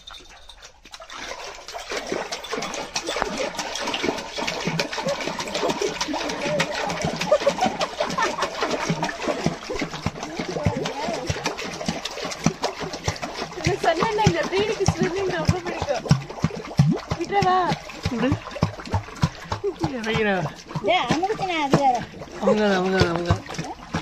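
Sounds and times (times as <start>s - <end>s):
water splashing and churning: 0.0s - 24.0s.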